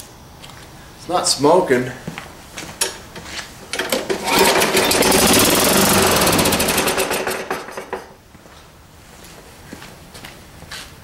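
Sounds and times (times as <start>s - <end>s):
lawn mower engine running: 3.7s - 8.2s.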